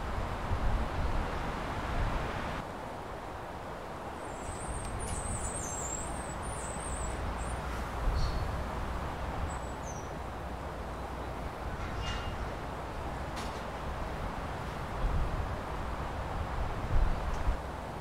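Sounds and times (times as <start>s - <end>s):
small birds chirping: 4.2s - 8.5s, 9.5s - 10.2s.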